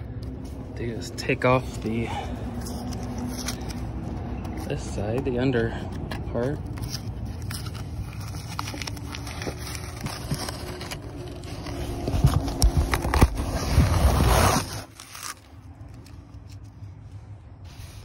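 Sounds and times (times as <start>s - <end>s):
tape peeling off fabric: 6.6s - 17.0s.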